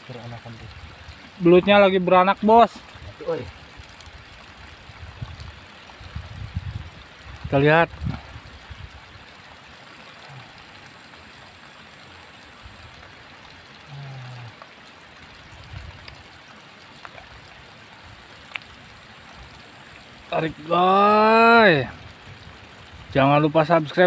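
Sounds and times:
trickle of running water: 0.0s - 24.0s
man humming: 13.8s - 14.6s.

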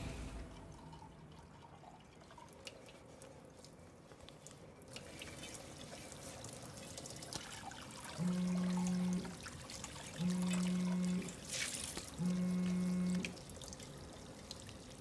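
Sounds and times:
water trickling from tap: 4.4s - 15.0s.

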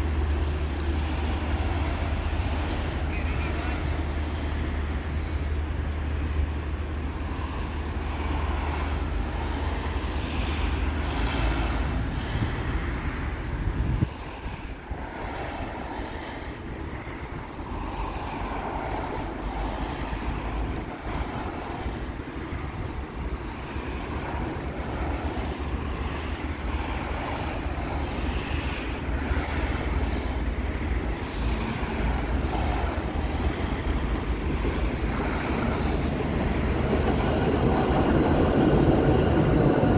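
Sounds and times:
distant traffic: 0.0s - 39.9s
wind rumble on microphone: 11.9s - 39.9s.

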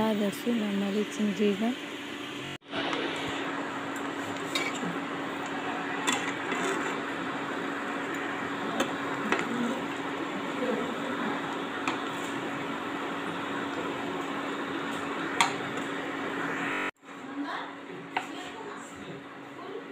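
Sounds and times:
eggs sizzling in oil: 3.4s - 16.6s.

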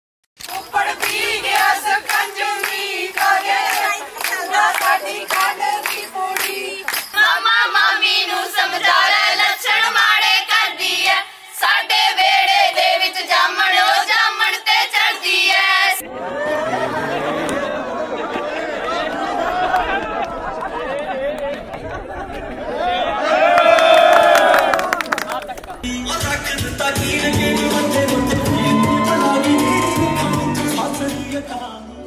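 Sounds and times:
hand clapping: 0.4s - 7.2s, 23.6s - 25.8s
group singing: 0.5s - 18.2s, 25.8s - 32.0s.

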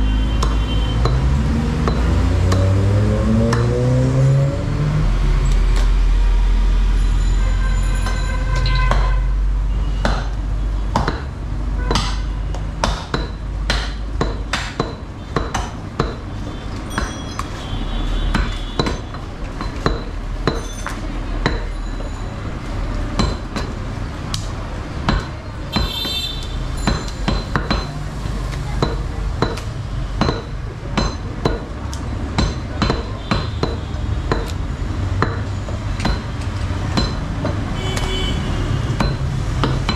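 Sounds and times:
cleavers chopping on wood: 0.3s - 2.8s, 10.0s - 17.6s, 18.2s - 21.7s, 23.2s - 38.1s, 38.9s - 39.9s.

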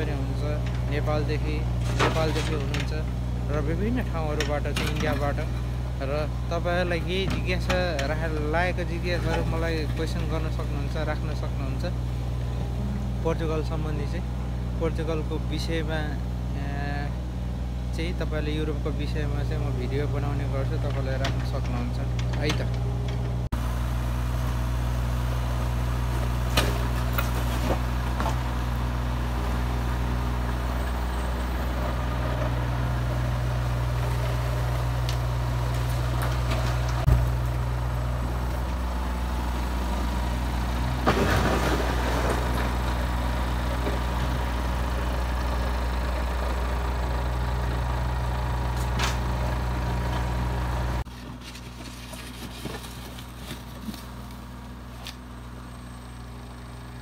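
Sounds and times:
diesel engines humming: 0.0s - 57.0s.

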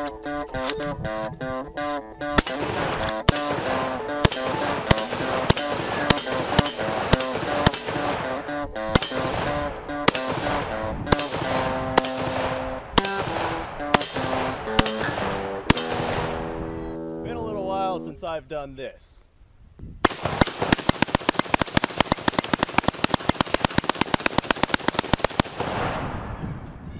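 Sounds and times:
background music: 0.0s - 18.2s
rifle shots echoing: 2.3s - 16.6s, 20.0s - 26.4s.

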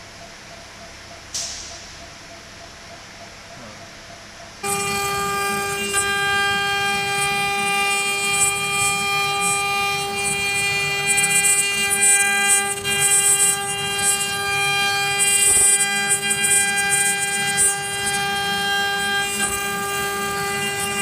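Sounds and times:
cnc router spindle whining: 4.6s - 21.0s
milling bit cutting wood: 4.6s - 21.0s.

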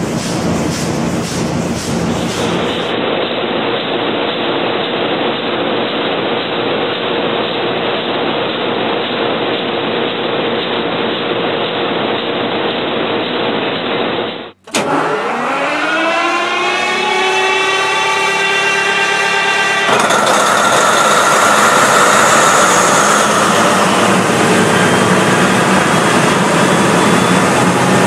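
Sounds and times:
large engine running: 0.0s - 28.0s
diesel engine speeding up: 14.5s - 28.0s.

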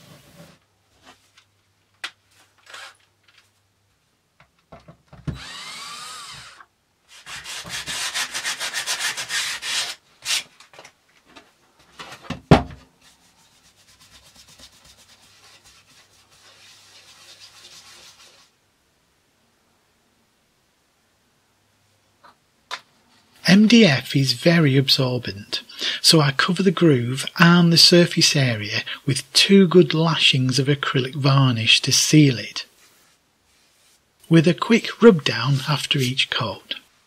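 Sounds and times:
hand rubbing sawdust off board: 34.6s - 36.7s.

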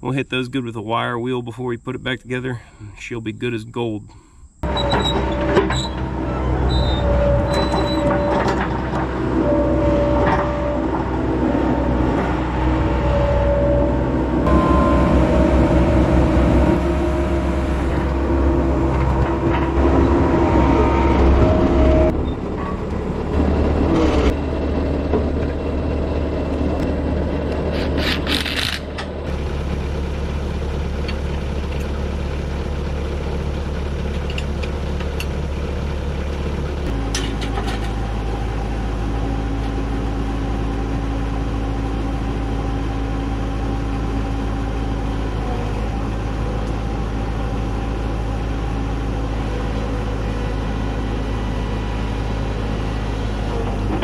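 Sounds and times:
loader engine running: 0.0s - 54.0s
metal clanks: 4.6s - 13.5s.

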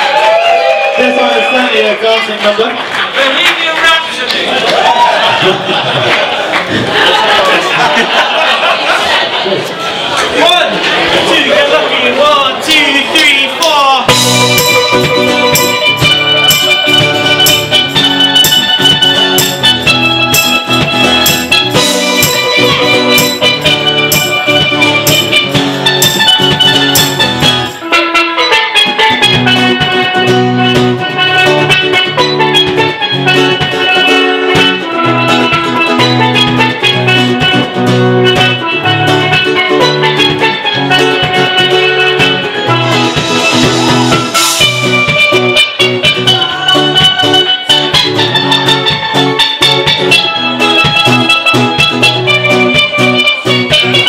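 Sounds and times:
drum beat and cymbal: 14.1s - 27.9s, 42.2s - 48.3s
steel pan melody: 14.1s - 54.0s
strummed acoustic guitar: 14.1s - 54.0s.

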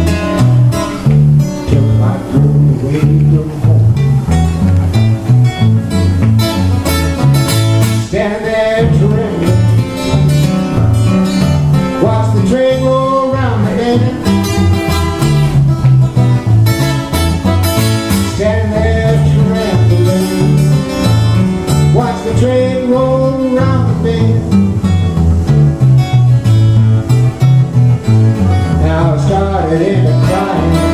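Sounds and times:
acoustic guitar strumming: 0.0s - 30.9s
man singing: 1.0s - 4.2s, 7.9s - 10.6s, 11.8s - 14.9s, 18.1s - 21.0s, 21.8s - 24.7s, 28.7s - 30.9s.

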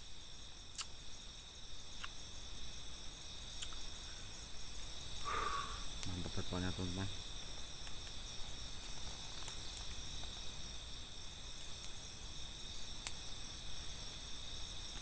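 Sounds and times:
crickets and insects trilling: 0.0s - 15.0s.

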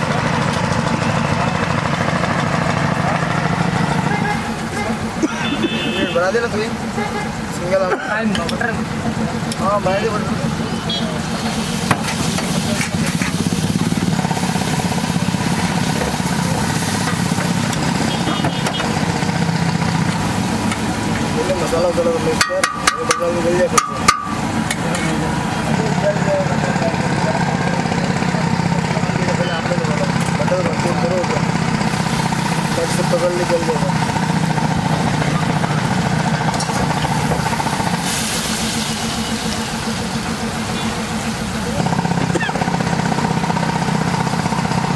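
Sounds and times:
low pulsing engine rumble: 0.0s - 44.9s
sizzling steam hiss: 11.2s - 18.0s, 36.6s - 41.5s
gravy sizzling on iron pan: 36.0s - 41.4s.

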